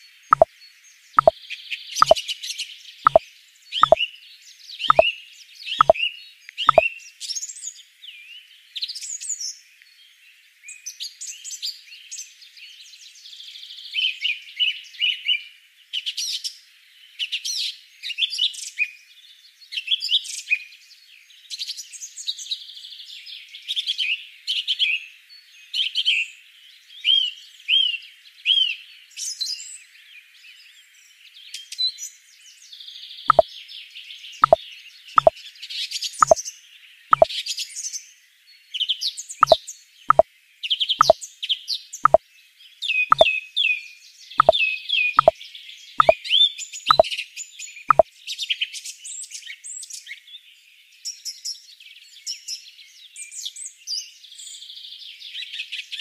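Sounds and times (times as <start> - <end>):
short plops: 39.4 - 40.2.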